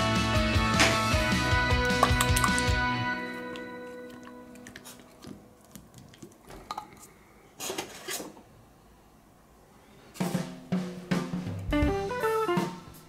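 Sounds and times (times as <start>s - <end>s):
music: 0.0s - 5.0s, 10.2s - 13.0s.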